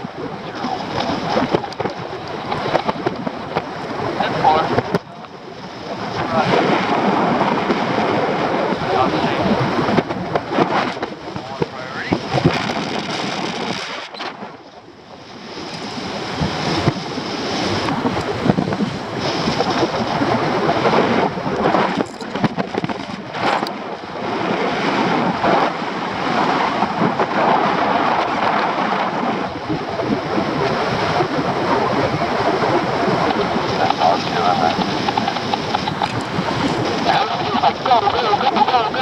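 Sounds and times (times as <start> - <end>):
wind rushing over microphone: 0.0 - 39.0.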